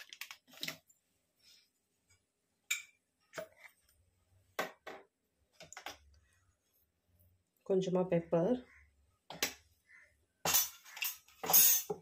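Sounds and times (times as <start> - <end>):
kitchen utensils clicking: 10.5 - 12.0.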